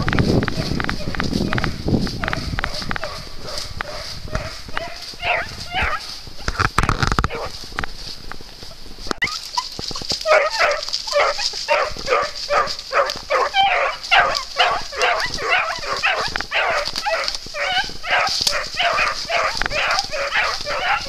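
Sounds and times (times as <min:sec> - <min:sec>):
puppies yelping: 0:00.0 - 0:07.6, 0:09.2 - 0:21.0.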